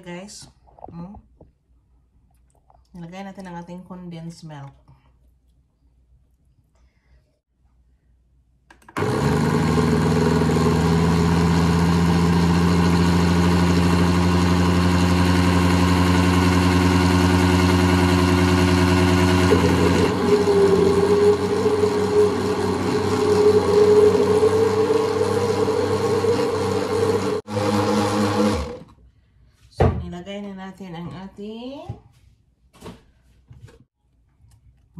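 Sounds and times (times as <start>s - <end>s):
blender motor running: 8.8s - 28.9s.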